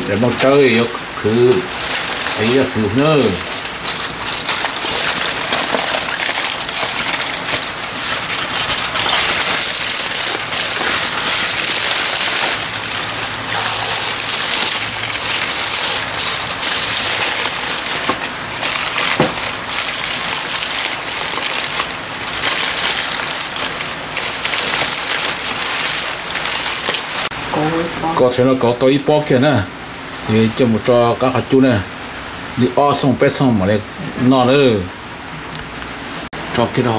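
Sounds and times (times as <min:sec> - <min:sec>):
aluminium foil crinkling: 0:00.0 - 0:27.3.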